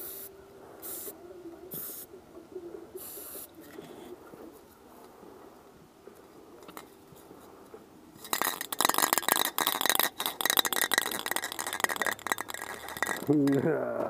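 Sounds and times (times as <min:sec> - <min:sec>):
spray can ball rattling: 0:08.2 - 0:14.0.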